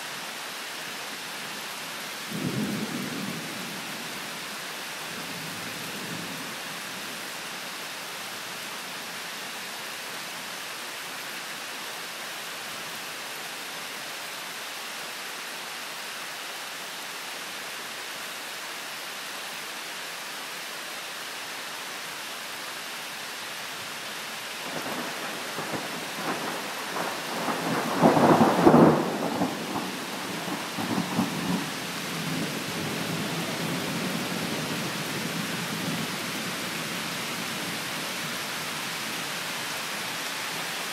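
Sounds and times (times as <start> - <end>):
steady rain falling: 0.0 - 40.9
thunder rumbling and cracking: 24.8 - 33.7.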